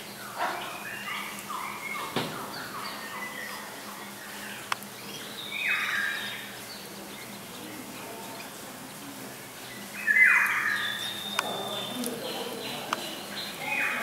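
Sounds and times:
ducks whistling calls: 0.0s - 6.6s, 9.9s - 14.0s.

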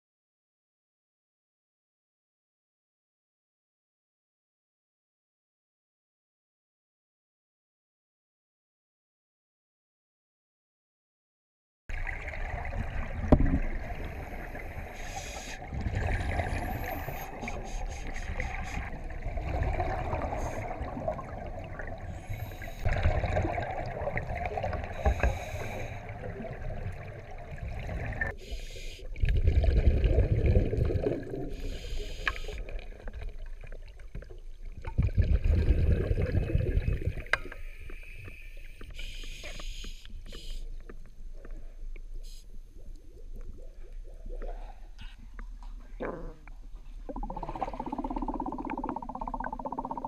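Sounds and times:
exhaled bubbles underwater: 11.9s - 38.3s, 41.6s - 50.0s.

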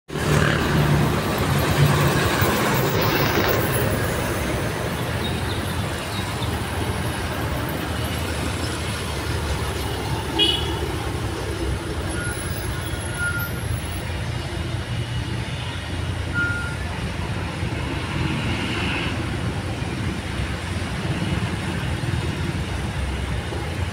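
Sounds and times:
motorcycles passing: 0.1s - 23.9s
trucks passing: 0.1s - 23.9s.

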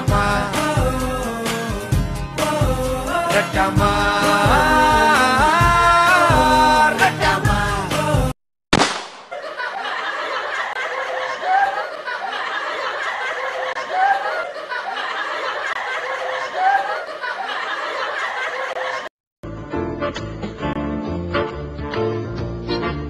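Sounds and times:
laughter: 9.3s - 19.1s.

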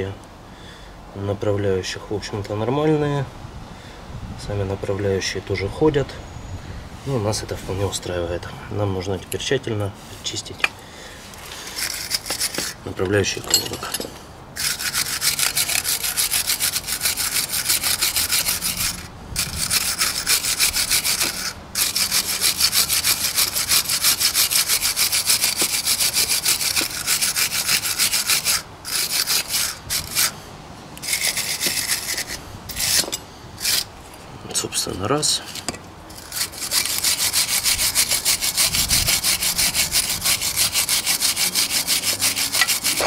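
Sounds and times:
brush scrubbing metal: 11.2s - 14.0s, 14.6s - 30.3s, 31.0s - 33.9s, 34.7s - 43.0s.

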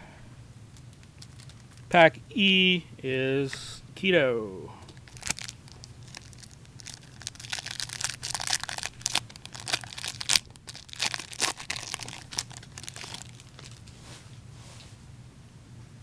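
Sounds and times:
plastic wrapper tearing and crinkling: 0.8s - 1.9s, 4.9s - 14.0s.

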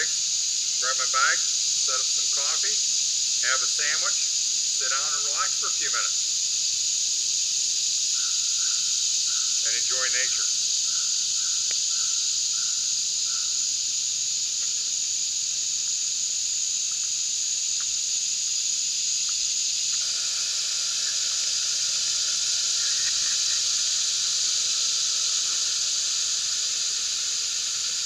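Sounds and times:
insect chorus buzzing: 0.0s - 28.0s
gas stove burner hissing: 19.2s - 28.0s.

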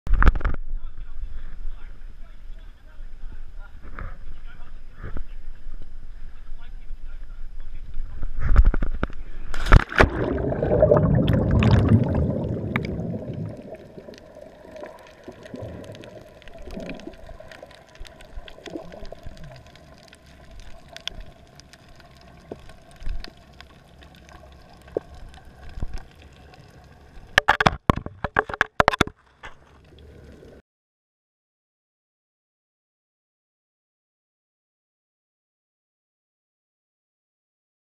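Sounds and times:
splash into sea: 9.5s - 17.2s
rushing bubbling water: 9.6s - 27.6s
sharp knocks and clatters: 27.4s - 29.6s.

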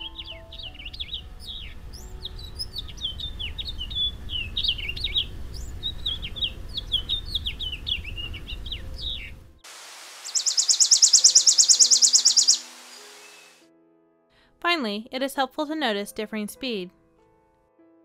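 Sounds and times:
sparrow trill: 0.0s - 9.3s, 10.3s - 13.6s
finch singing warbled song: 0.0s - 9.4s, 10.2s - 13.6s.

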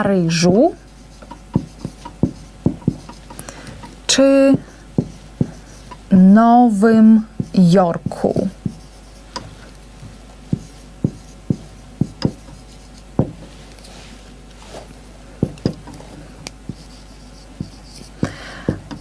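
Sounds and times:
marker scratching on whiteboard: 0.3s - 19.0s
marker tapping on whiteboard: 1.2s - 6.0s, 6.9s - 13.4s, 15.4s - 19.0s.

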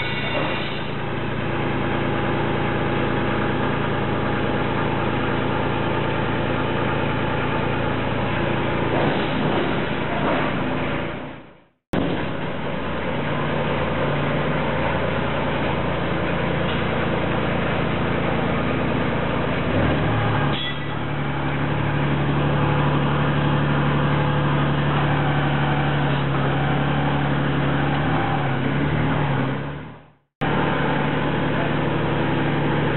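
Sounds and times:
boat engine running: 12.0s - 32.9s.

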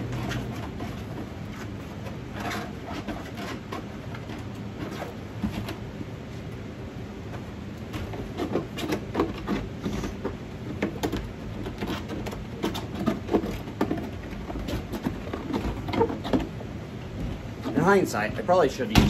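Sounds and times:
scissors scraping plastic: 11.0s - 16.5s.

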